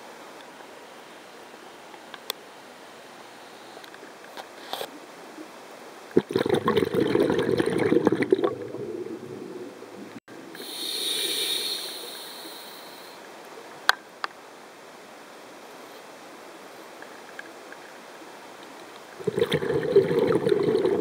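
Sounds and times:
water churning underwater: 6.1s - 10.2s, 19.2s - 21.0s.

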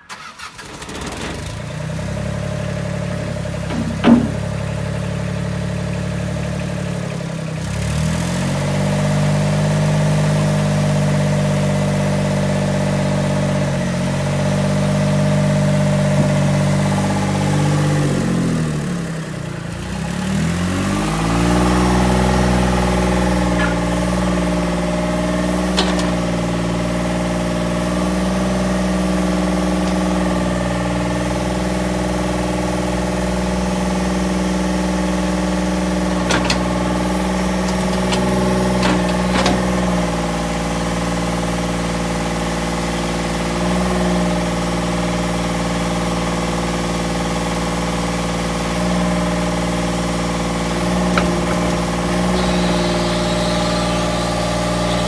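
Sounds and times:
diesel engine running: 0.0s - 55.0s
sharp knock: 3.7s - 4.5s.

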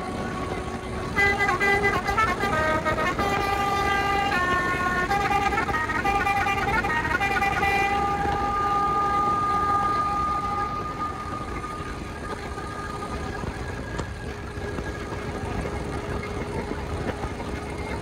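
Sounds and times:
bus horn held chord: 0.0s - 13.2s
bus engine and road noise: 0.0s - 18.0s.

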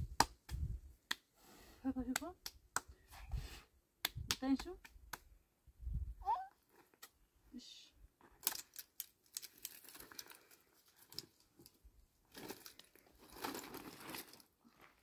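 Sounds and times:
sharp snaps and crackles: 6.8s - 7.2s, 8.3s - 11.8s
rustling and crinkling: 8.2s - 15.0s.

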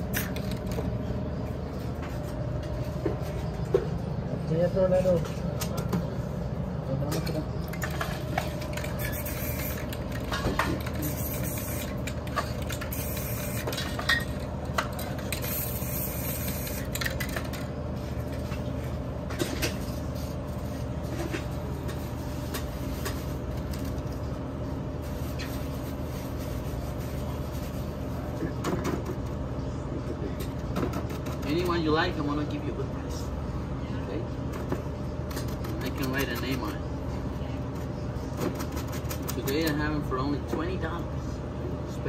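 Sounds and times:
steady low hum: 0.0s - 42.0s
spray-paint cans hissing: 8.9s - 10.1s, 10.9s - 12.1s, 12.7s - 13.9s, 15.4s - 17.0s.

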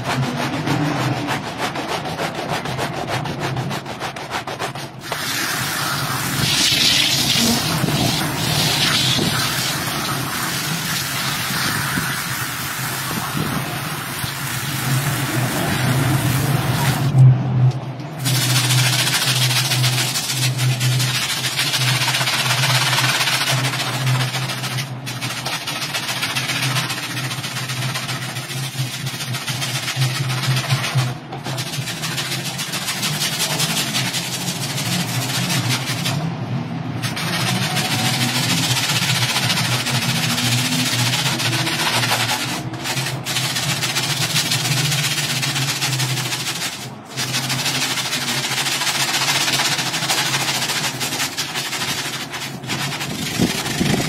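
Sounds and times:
brush scrubbing a wet rug: 0.0s - 17.2s, 18.2s - 36.2s, 37.0s - 54.0s
low motor hum: 0.0s - 21.8s, 51.8s - 54.0s.

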